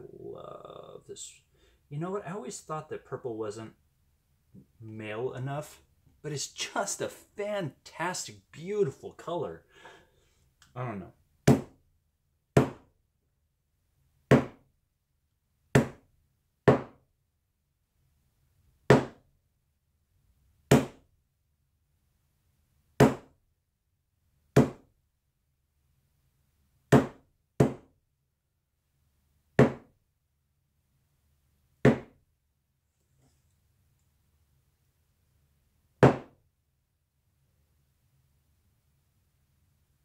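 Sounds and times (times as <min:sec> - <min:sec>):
hammer knocking on hard panel: 0:12.6 - 0:12.8, 0:14.3 - 0:14.6, 0:16.7 - 0:17.0.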